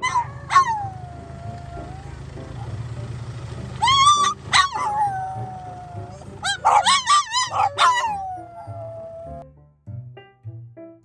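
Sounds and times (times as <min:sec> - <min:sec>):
dog howling: 0:00.0 - 0:02.7, 0:03.8 - 0:09.4.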